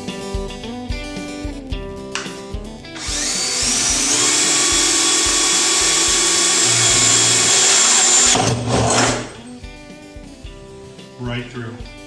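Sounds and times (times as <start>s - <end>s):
cordless drill boring through plastic: 3.0s - 9.5s.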